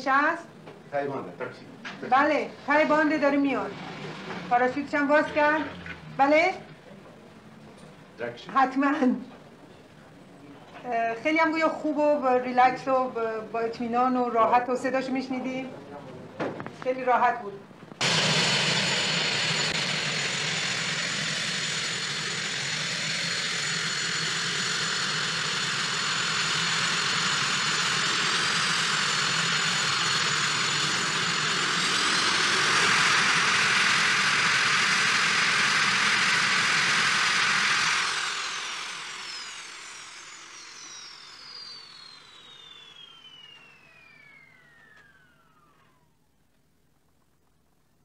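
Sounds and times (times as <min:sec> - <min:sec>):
jet engines spooling down: 0:02.0 - 0:07.9, 0:17.9 - 0:46.4
jet engines running: 0:17.8 - 0:46.3.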